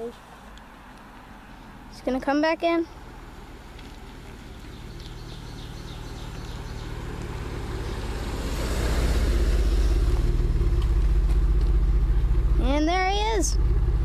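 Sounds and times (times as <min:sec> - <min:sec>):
car exhaust passing by: 0:02.8 - 0:14.0.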